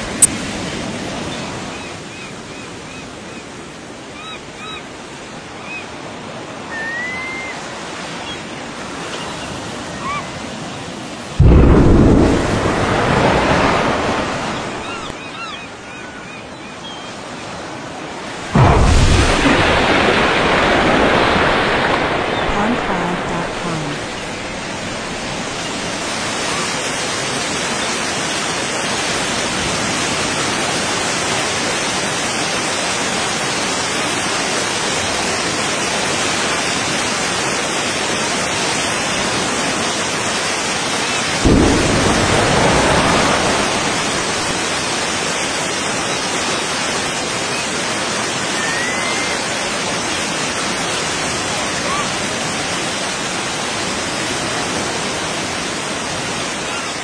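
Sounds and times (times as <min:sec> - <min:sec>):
rushing water and spray: 0:00.0 - 0:57.0
deep rumbling boom: 0:11.4 - 0:15.1, 0:18.6 - 0:25.8, 0:41.4 - 0:45.1.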